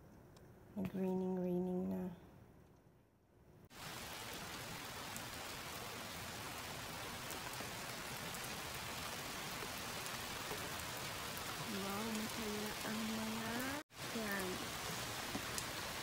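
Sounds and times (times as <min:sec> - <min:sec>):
rain on ground and concrete: 0:03.7 - 0:16.0.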